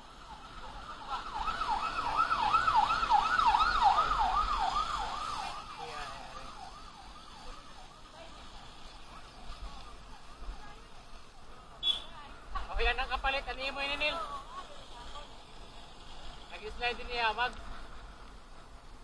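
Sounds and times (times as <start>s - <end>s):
electronic siren yelping: 0.1s - 7.9s.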